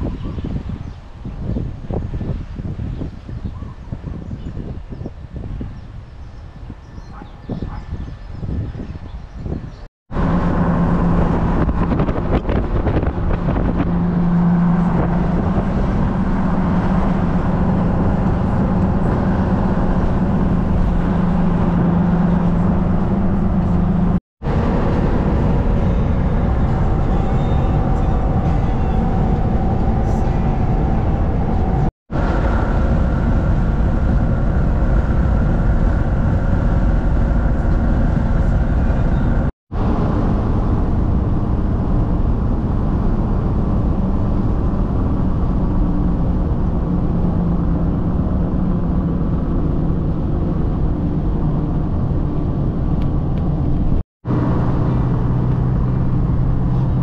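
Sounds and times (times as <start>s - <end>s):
tyre and wind noise: 0.0s - 57.0s
low engine drone: 10.1s - 57.0s.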